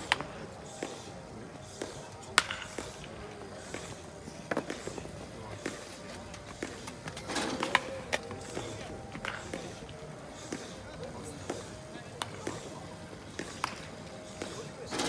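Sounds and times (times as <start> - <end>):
baseball bat cracks: 0.0 - 1.1, 1.8 - 5.0, 6.6 - 9.8, 13.3 - 15.0.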